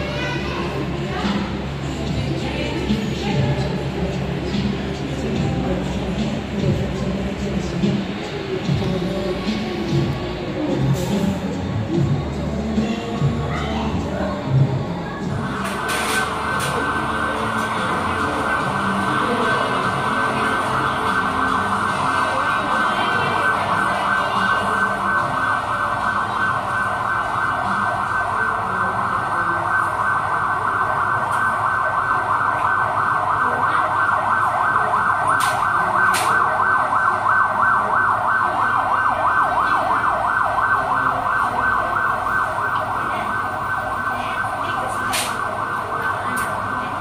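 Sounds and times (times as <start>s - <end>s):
siren yelping: 15.2s - 47.0s.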